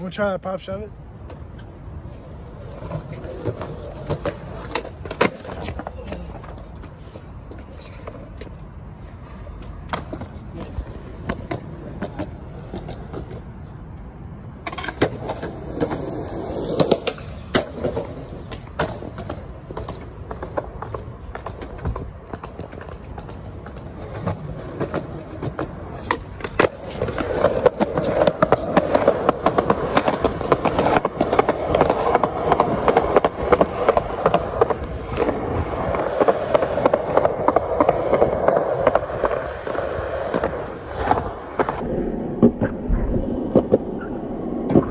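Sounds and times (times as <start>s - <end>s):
skateboard wheels rolling on concrete: 0.0s - 44.9s
skateboard clacking on pavement: 1.2s - 8.8s, 9.5s - 13.7s, 14.6s - 41.8s.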